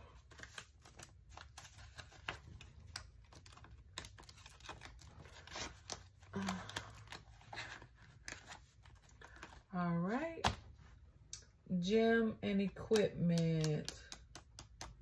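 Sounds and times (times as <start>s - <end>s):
paper banknotes rustling: 0.0s - 11.0s.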